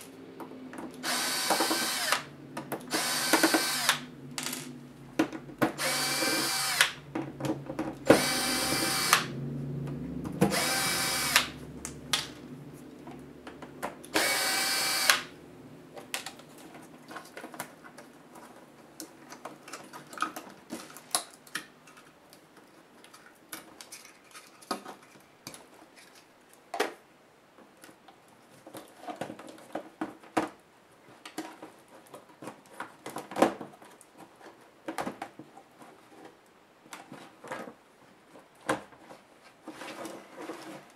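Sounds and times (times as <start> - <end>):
electric screwdriver whining: 1.0 - 2.3, 2.9 - 4.0, 5.8 - 7.0, 8.1 - 9.3, 10.5 - 11.6, 14.1 - 15.3.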